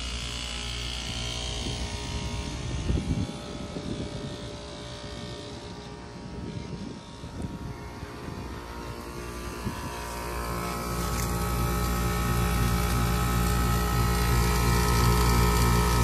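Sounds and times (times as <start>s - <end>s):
heat pump humming: 0.0s - 16.0s.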